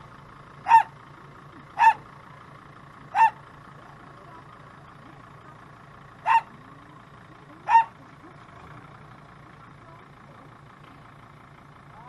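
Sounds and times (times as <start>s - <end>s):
vehicle engine idling: 0.0s - 12.0s
small dog yapping: 0.6s - 0.9s, 1.8s - 2.0s, 3.1s - 3.4s, 6.2s - 6.5s, 7.7s - 8.0s.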